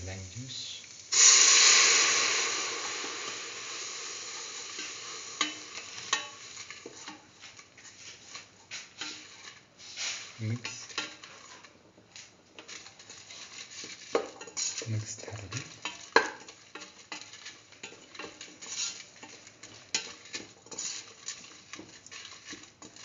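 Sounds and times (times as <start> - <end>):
juice sizzling in hot oil: 0.0 - 23.0
spatula scraping a pot: 4.8 - 23.0.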